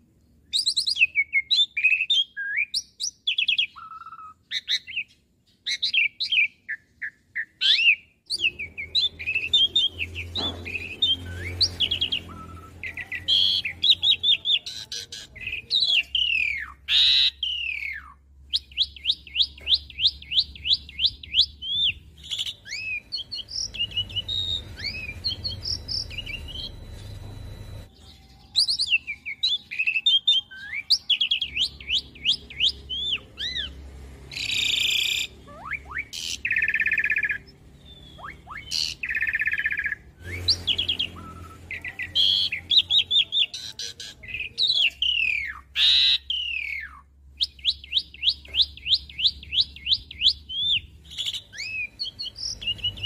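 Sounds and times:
starling singing: 0.5 - 53.0
harsh rasping bird notes: 7.6 - 27.8, 30.6 - 47.0.

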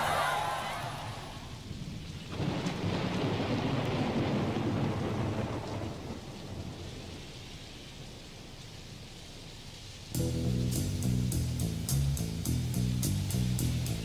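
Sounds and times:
thunder rolling: 0.0 - 7.4
steady rain: 0.0 - 14.0.

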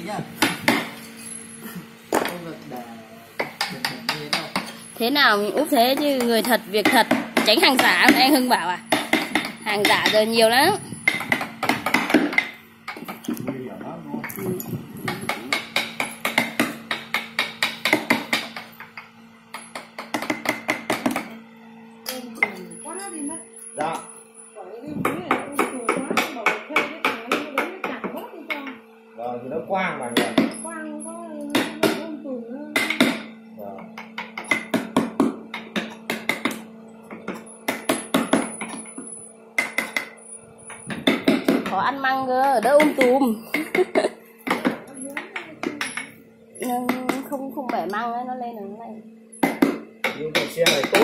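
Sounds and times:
steady low hum: 0.0 - 51.0
mallet striking chisel: 11.0 - 13.2, 15.1 - 21.3, 30.1 - 30.6, 34.0 - 36.6, 37.3 - 40.2, 49.4 - 51.0.

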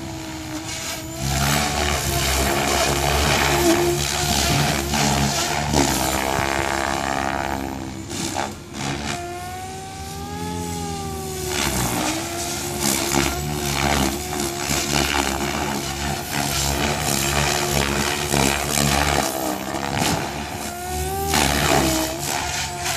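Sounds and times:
rc helicopter whine and drone: 0.0 - 22.9.

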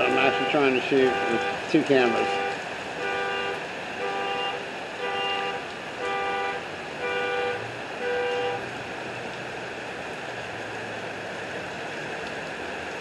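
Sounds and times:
rain hissing: 0.0 - 13.0
car alarm horn honking: 0.2 - 8.6.

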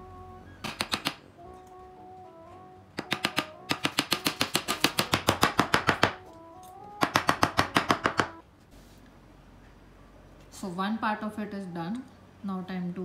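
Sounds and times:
hammer tapping on cabinet panel: 3.0 - 6.2, 7.0 - 8.4.

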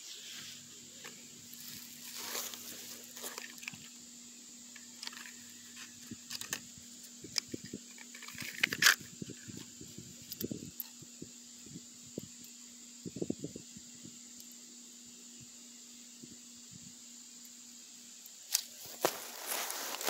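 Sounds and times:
scraping rustle: 0.0 - 4.0, 18.6 - 20.0
cardboard box crinkling: 18.8 - 20.0.

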